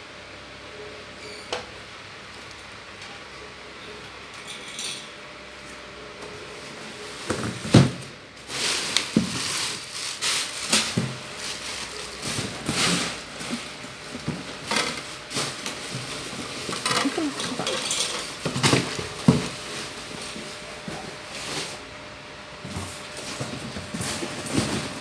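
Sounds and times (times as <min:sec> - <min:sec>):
plastic packaging rustling: 0:08.4 - 0:21.8.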